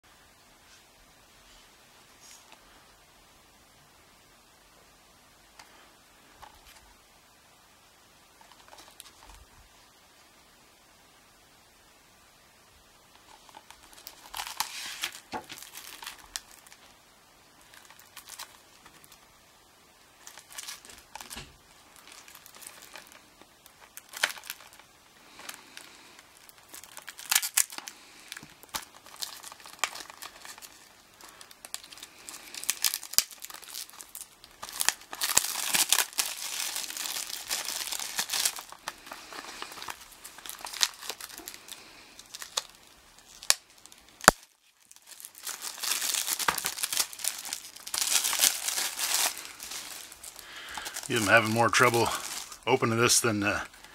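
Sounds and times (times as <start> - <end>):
plastic wrap crinkling and tearing: 8.4 - 9.5, 13.1 - 19.4, 20.0 - 53.9.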